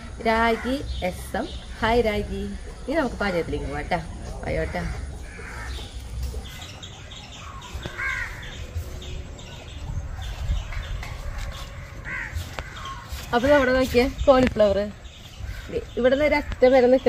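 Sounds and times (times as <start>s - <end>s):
birds calling: 0.0s - 17.0s
crow cawing: 4.7s - 5.9s, 7.6s - 8.6s, 12.0s - 13.0s.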